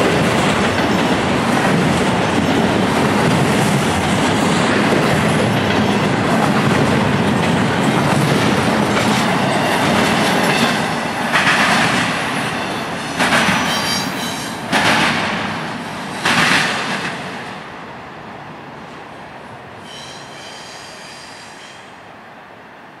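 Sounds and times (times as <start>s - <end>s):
train wheels clattering: 0.0s - 17.4s
high wheel squeal: 19.8s - 21.9s.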